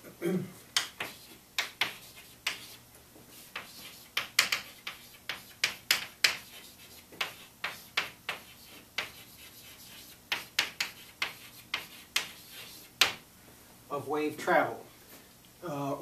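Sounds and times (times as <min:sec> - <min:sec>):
chalk tapping and scraping on blackboard: 0:00.7 - 0:13.2.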